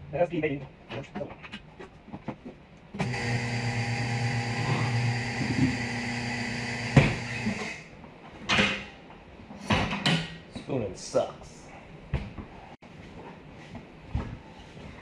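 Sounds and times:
machine motor humming: 0:03.0 - 0:07.8.

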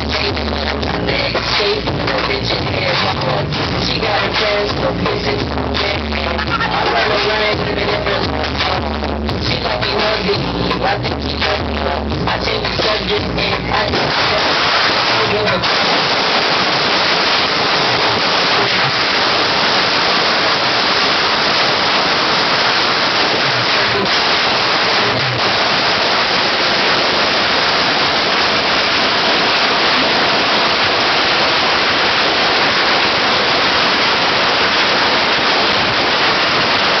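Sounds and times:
firecrackers crackling: 0:00.0 - 0:37.0
sharp firework bangs: 0:13.9 - 0:37.0.

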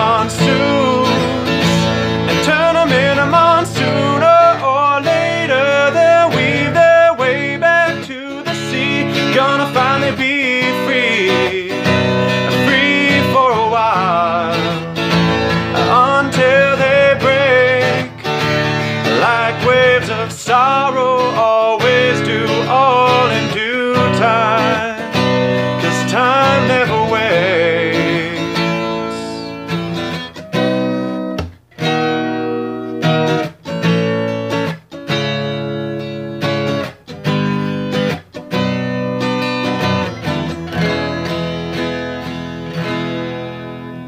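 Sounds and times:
person singing: 0:00.0 - 0:29.7
acoustic guitar strumming: 0:00.0 - 0:44.0.

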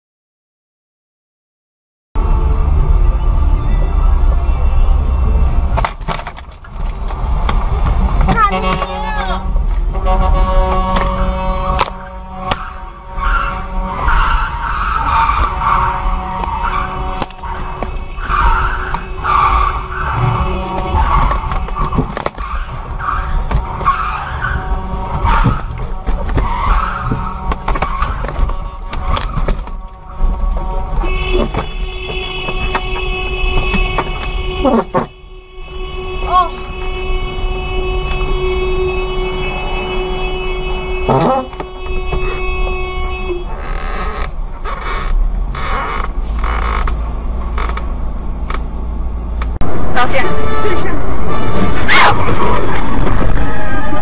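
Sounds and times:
low road vehicle rumble: 0:02.2 - 0:54.0
car tyres skidding and squealing: 0:06.4 - 0:35.2, 0:39.2 - 0:54.0
horn-like tone: 0:08.3 - 0:22.0, 0:23.0 - 0:44.3, 0:49.6 - 0:54.0
engine rumble: 0:39.6 - 0:54.0.

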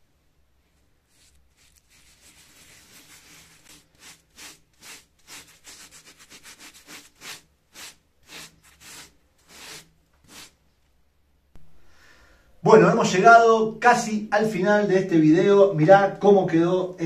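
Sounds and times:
sponge scrubbing rough plaster: 0:01.0 - 0:10.6.

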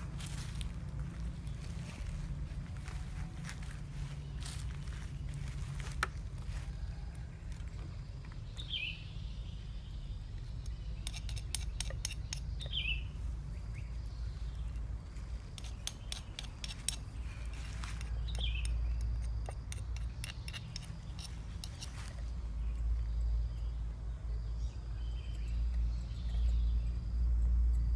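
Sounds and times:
steady low rumble: 0:00.0 - 0:27.9
bird chirping: 0:07.7 - 0:27.9.

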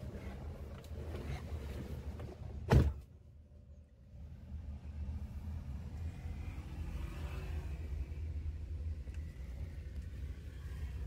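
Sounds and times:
low rumble inside car cabin: 0:00.0 - 0:11.0
heavy thump: 0:02.6 - 0:03.0.

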